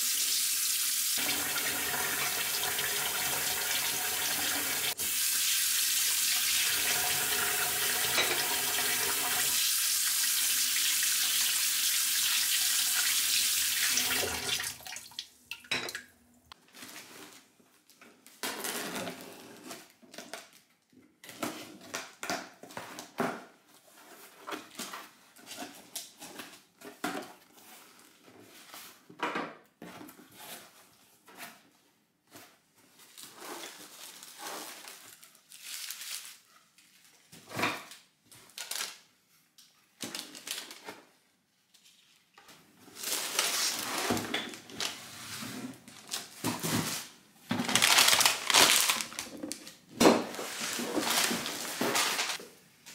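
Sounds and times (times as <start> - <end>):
tap water running into steel sink: 0.1 - 16.0
cardboard flaps scraping and rustling: 50.2 - 52.4.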